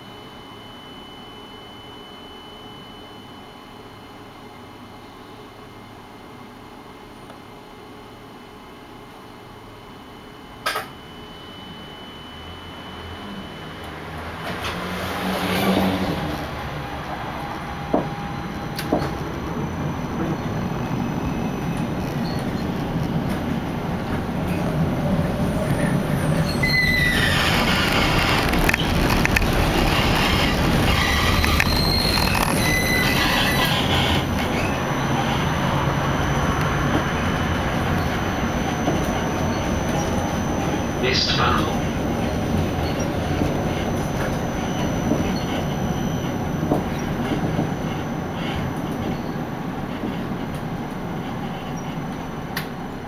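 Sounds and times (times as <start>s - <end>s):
faint high whine: 0.0s - 15.4s, 16.0s - 53.0s
tram wheels rumbling on rail: 14.1s - 53.0s
high-pitched wheel squeals: 25.4s - 50.2s.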